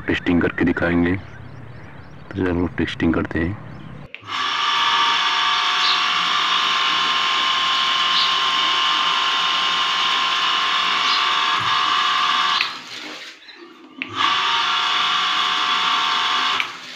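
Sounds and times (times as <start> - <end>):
electric pump motor whine: 4.2 - 16.9.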